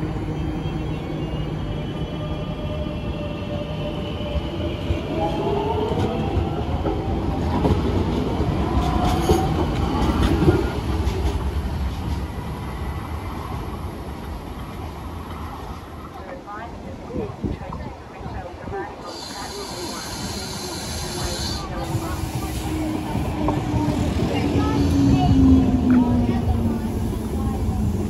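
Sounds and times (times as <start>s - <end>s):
train wheels rumbling and clattering: 4.0s - 16.0s, 19.4s - 28.0s.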